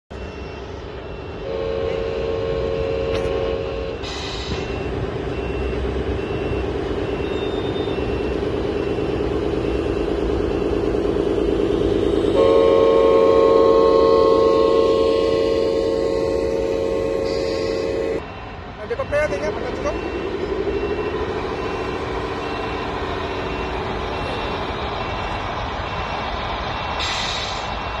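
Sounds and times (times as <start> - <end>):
electronic diesel engine sound: 0.1 - 28.0
air horn chord: 1.4 - 4.1, 11.1 - 18.2
short air hiss: 27.0 - 27.7.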